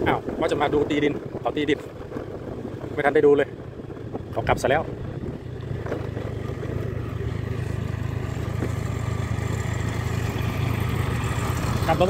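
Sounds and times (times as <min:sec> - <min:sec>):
tractor engine running: 0:03.6 - 0:12.0.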